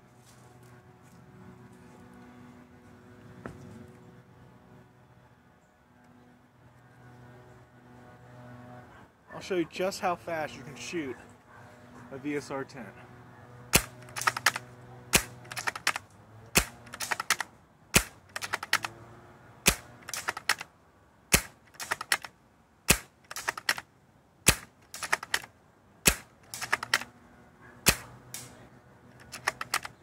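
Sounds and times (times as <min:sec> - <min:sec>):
airsoft rifle shots: 0:13.7 - 0:18.9, 0:19.6 - 0:20.7, 0:21.3 - 0:22.3, 0:22.9 - 0:27.1, 0:27.8 - 0:28.6, 0:29.2 - 0:30.0
rifle bolt clicking: 0:13.8 - 0:14.6, 0:15.2 - 0:18.9, 0:19.7 - 0:20.7, 0:21.4 - 0:22.3, 0:22.9 - 0:23.8, 0:24.5 - 0:25.5, 0:26.1 - 0:27.1, 0:29.1 - 0:30.0.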